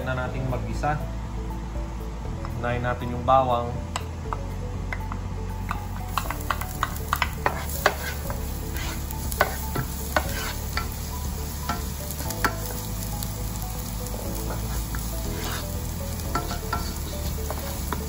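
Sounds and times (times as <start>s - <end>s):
garlic sizzling in hot oil: 5.6s - 18.0s
wooden spoon stirring: 5.7s - 10.9s, 14.3s - 18.0s.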